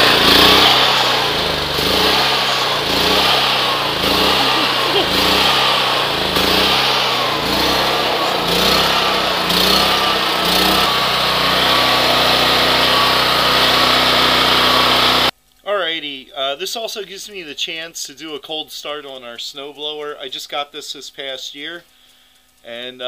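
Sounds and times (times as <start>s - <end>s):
generator engine surging: 0.0s - 15.3s.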